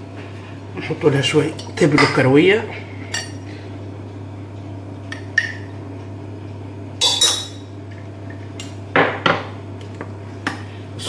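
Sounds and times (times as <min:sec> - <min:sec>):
steady low hum: 0:00.0 - 0:11.0
metal utensil clinking on pot: 0:07.0 - 0:07.6.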